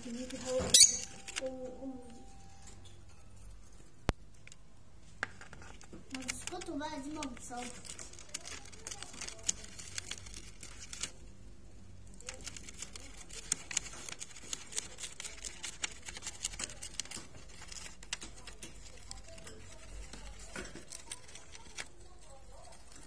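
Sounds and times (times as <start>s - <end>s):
parrot tearing paper: 0.0s - 1.5s, 5.4s - 11.3s, 12.1s - 23.0s.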